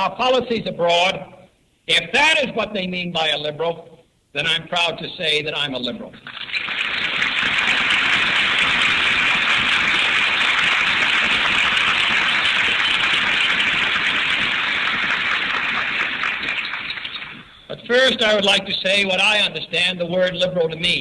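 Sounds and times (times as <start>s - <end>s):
audience applauding: 6.2s - 17.6s.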